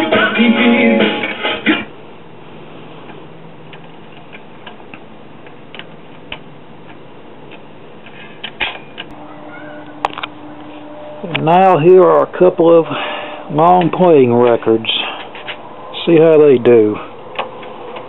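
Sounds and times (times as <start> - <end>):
record surface hiss: 0.0 - 18.0
low steady hum: 8.9 - 18.0.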